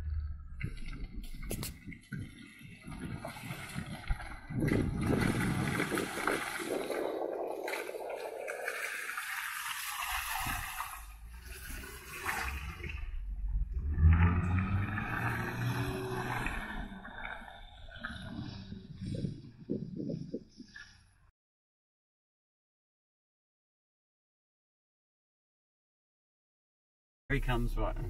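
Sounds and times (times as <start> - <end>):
low engine note: 0.0 - 1.7, 27.3 - 28.0
tyres splashing through mud: 0.6 - 18.7.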